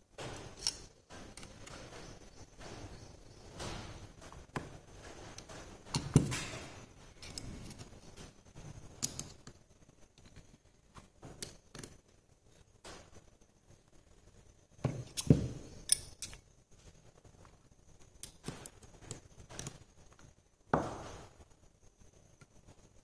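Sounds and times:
metallic clicks of hand tools: 0.4s - 1.8s, 15.1s - 16.4s
loud knock: 20.8s - 21.2s.

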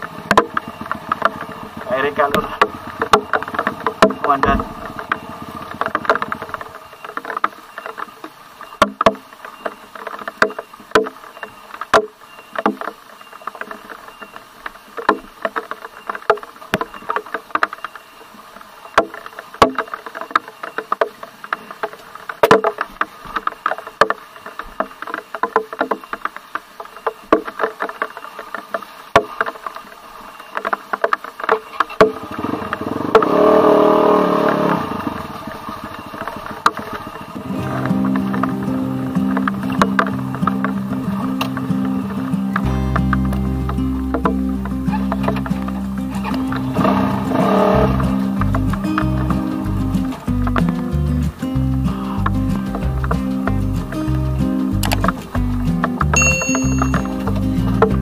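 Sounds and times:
dirt bike engine running: 0.0s - 7.2s, 32.0s - 58.0s
bike knocking and rattling: 0.0s - 18.1s, 18.9s - 58.0s.

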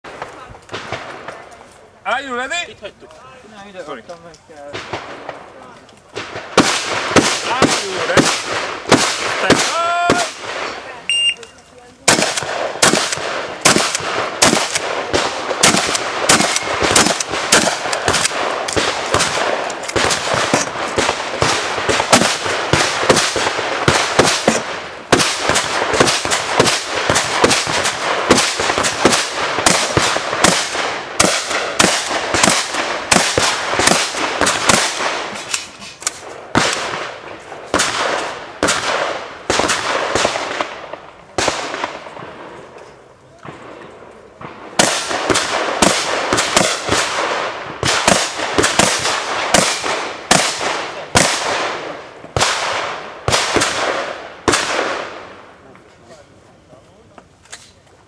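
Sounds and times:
shotgun firing rapid shots: 6.2s - 10.8s, 12.1s - 42.0s, 44.6s - 55.2s.

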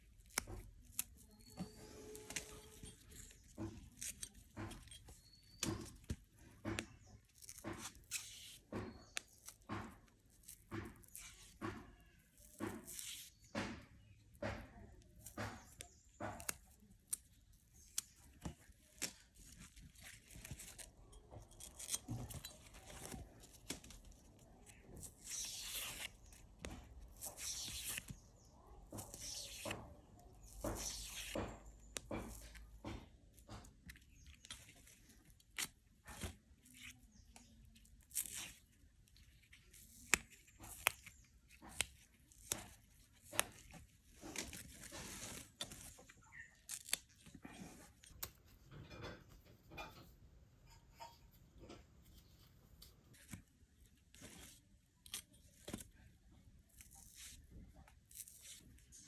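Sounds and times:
fibrous skin tearing: 27.1s - 28.3s, 38.0s - 47.3s
plant stalks snapping: 39.4s - 47.3s.

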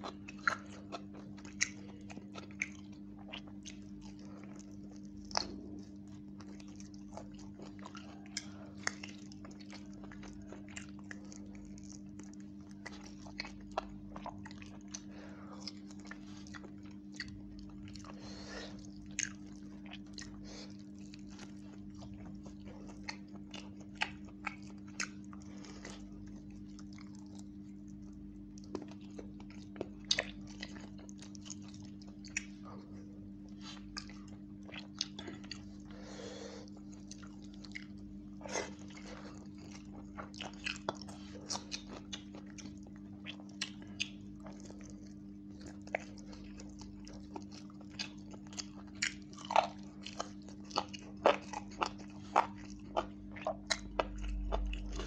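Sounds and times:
chewing and crunching food: 0.0s - 55.0s
low hum: 52.7s - 55.0s.

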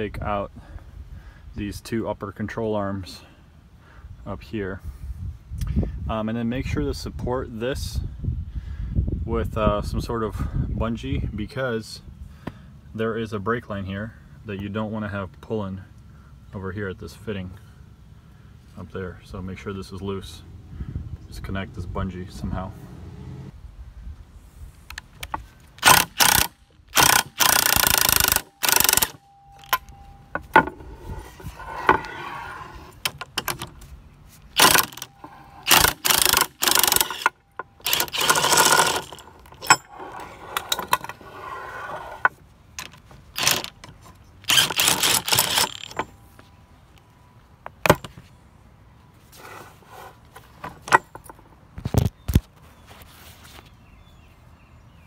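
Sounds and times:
cordless power tool bursts: 25.8s - 29.8s, 34.6s - 39.8s, 43.4s - 43.7s, 44.4s - 46.1s.

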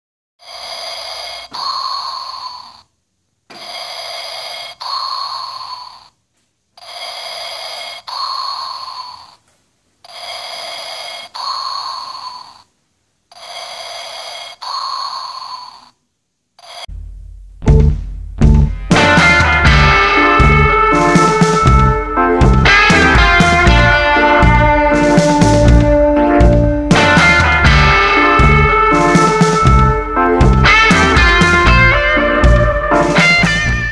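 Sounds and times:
mechanical breathing hiss: 0.4s - 2.9s, 3.5s - 6.2s, 6.8s - 9.4s, 10.0s - 12.7s, 13.3s - 16.0s, 16.6s - 16.9s.

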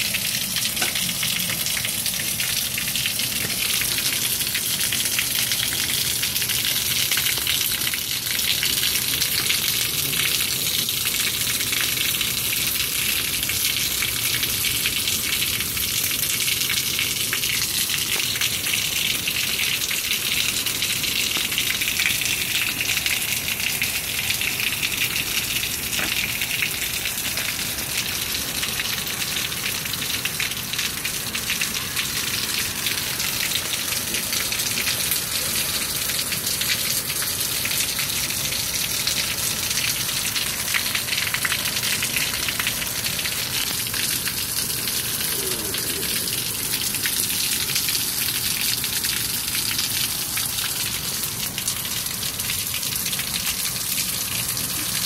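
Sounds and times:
heavy rain on concrete: 0.0s - 55.0s
water pouring off roof: 0.0s - 55.0s.

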